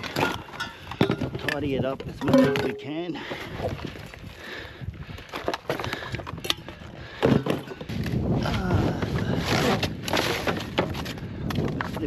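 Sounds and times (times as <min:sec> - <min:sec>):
junk clattering: 0:00.0 - 0:03.0
junk rustling and scraping: 0:00.0 - 0:04.2, 0:05.1 - 0:12.0.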